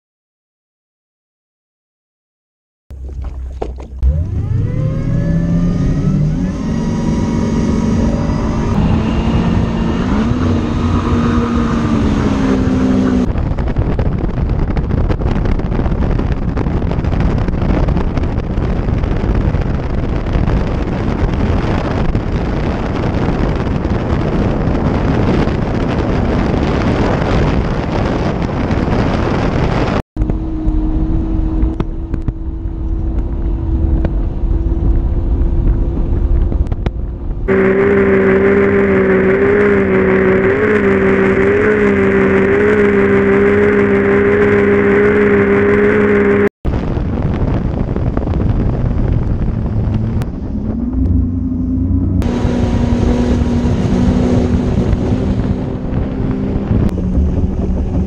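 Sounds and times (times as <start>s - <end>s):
outboard engine accelerating: 2.9s - 58.0s
rush of wind and water: 2.9s - 58.0s.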